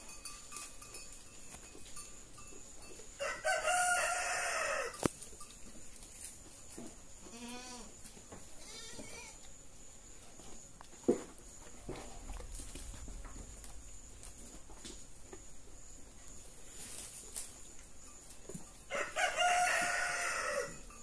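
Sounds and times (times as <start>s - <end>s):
rooster crowing: 3.2s - 5.1s, 18.9s - 21.0s
goat bleating: 7.3s - 7.9s, 8.6s - 9.4s.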